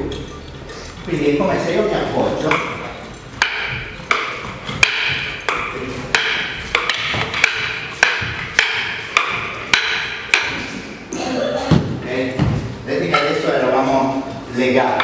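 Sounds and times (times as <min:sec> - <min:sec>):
wooden sticks clacking together: 0:02.4 - 0:10.6.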